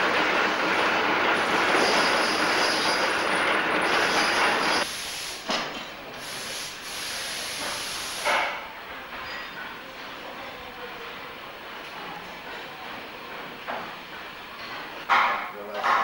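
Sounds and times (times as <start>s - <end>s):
loud machinery hissing: 0.0s - 8.7s.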